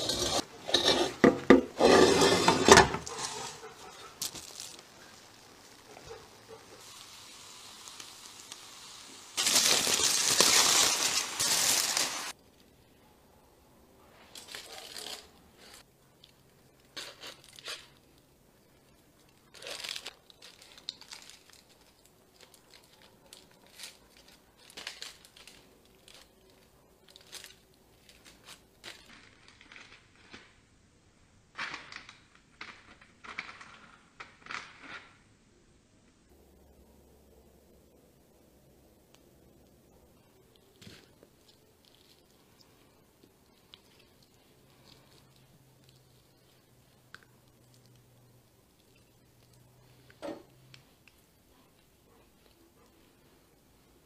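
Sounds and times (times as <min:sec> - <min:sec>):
foil crinkling and tearing: 0:02.6 - 0:12.4, 0:14.3 - 0:15.9, 0:16.9 - 0:18.2, 0:19.3 - 0:30.6, 0:31.6 - 0:35.2.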